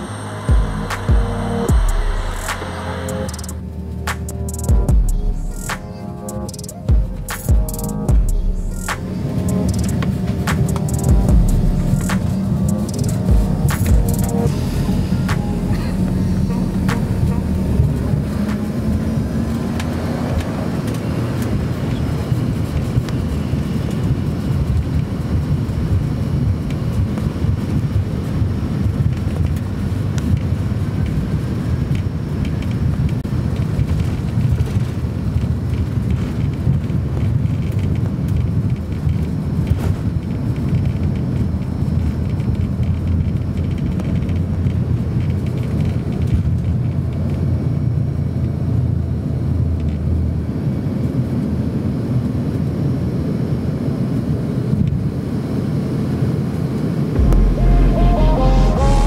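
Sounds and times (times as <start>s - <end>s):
air rushing past fuselage: 0.0s - 23.0s
jet engines rumbling: 0.0s - 48.4s.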